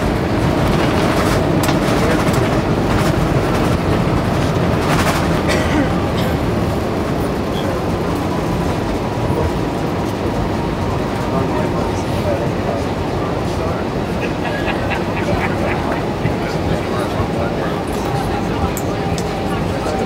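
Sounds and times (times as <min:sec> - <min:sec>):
rumble of wheels and engines: 0:00.0 - 0:20.0.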